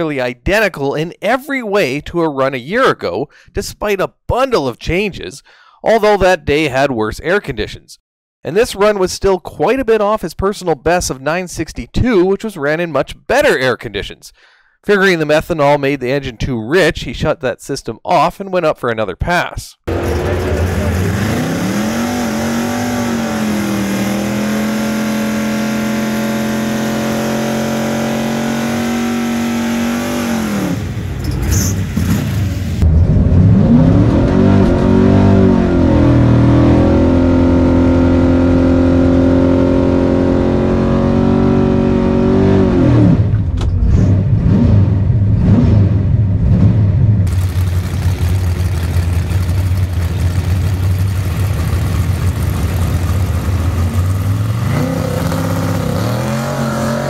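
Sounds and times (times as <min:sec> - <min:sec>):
car engine revving and idling: 0:19.9 - 0:57.0.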